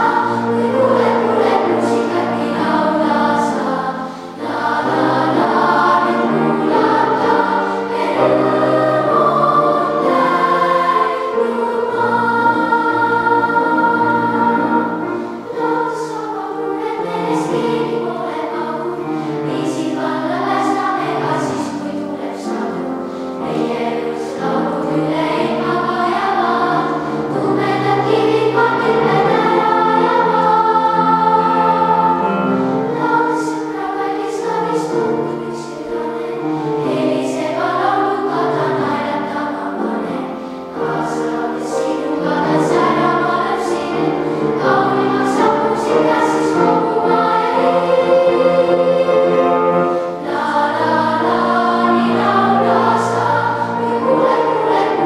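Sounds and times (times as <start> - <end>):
girls' choir singing: 0.0 - 55.0.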